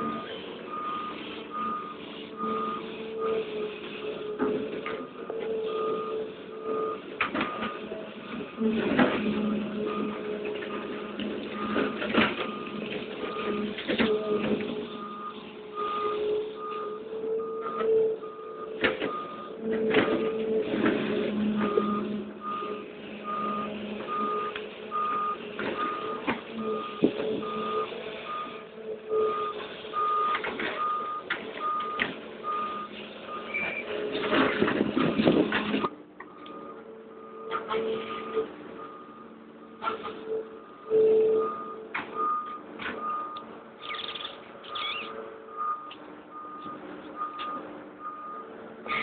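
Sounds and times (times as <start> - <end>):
warning alarm beeps: 0.0 - 3.4, 11.6 - 19.6, 21.4 - 33.9, 36.3 - 48.5
excavator diesel engine running: 0.0 - 49.0.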